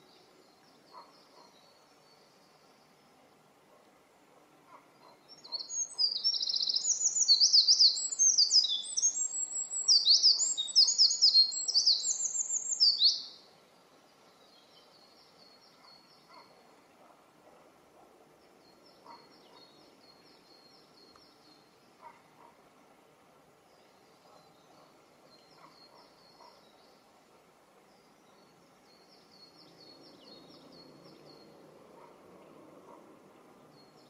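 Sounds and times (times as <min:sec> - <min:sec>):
distant bird song: 0:00.0 - 0:03.9, 0:04.7 - 0:22.7, 0:23.6 - 0:34.0
wren singing rapid trills: 0:05.3 - 0:13.4.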